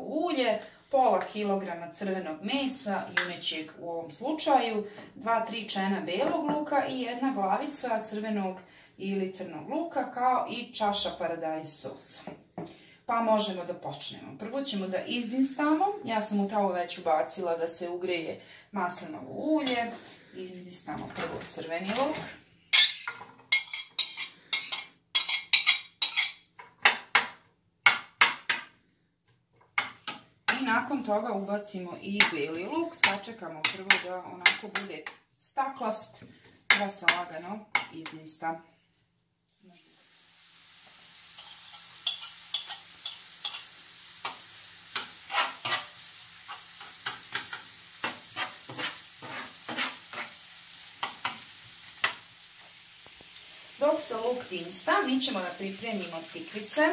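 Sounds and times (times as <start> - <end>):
metal spoon clinking on plate and pan: 22.8 - 26.5, 41.4 - 45.9, 46.5 - 50.3
onion sizzling in a frying pan: 39.6 - 56.9.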